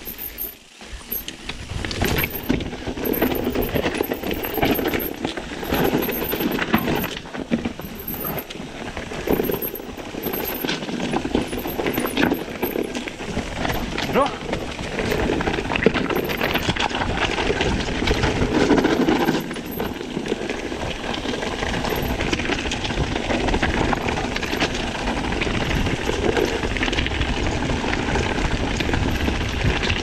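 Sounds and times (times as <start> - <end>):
bike knocking and rattling: 0.0 - 30.0
bike tyres rolling rumble: 0.0 - 30.0.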